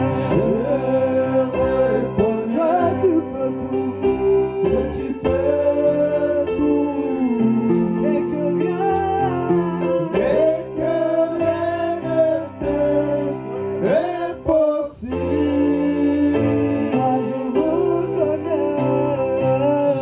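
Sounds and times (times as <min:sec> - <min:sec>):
electronic keyboard chords: 0:00.0 - 0:20.0.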